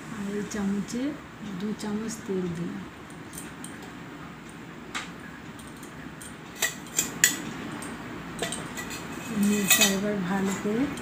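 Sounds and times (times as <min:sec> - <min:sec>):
steel spoon clinking on plate: 0:05.7 - 0:11.0.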